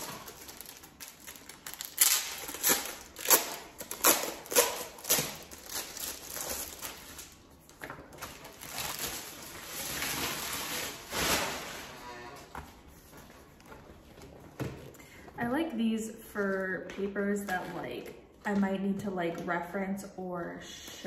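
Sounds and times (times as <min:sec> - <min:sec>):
paper and plastic sleeve crinkling: 0:00.0 - 0:14.4.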